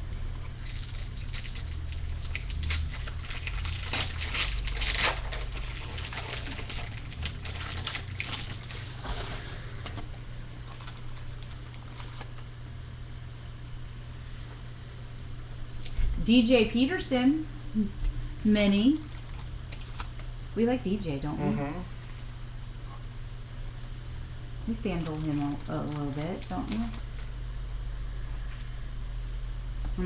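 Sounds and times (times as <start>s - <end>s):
foil wrapper tearing and crinkling: 0.5s - 12.6s, 19.0s - 20.2s, 24.9s - 27.4s.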